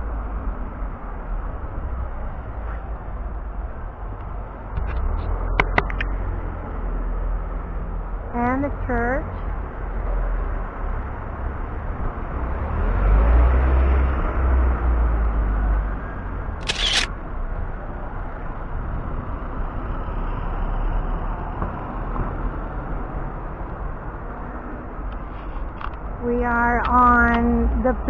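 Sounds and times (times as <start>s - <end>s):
low street rumble: 0.0s - 28.0s
camera shutter click: 16.6s - 17.1s.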